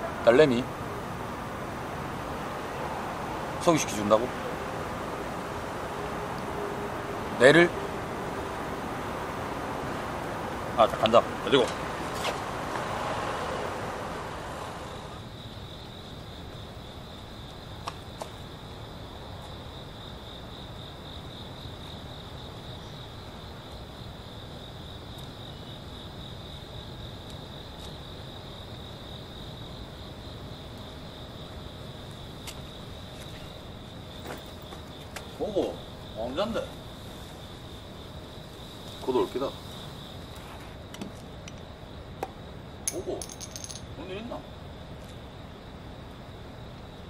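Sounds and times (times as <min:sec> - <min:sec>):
rushing noise: 0:00.0 - 0:15.3
crickets chirping: 0:00.0 - 0:47.0.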